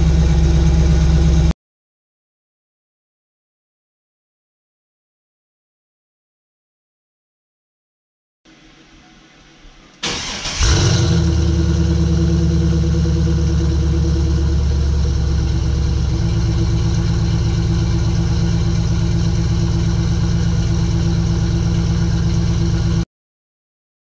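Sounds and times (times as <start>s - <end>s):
car engine starting and idling: 0.0s - 1.5s, 10.0s - 23.0s.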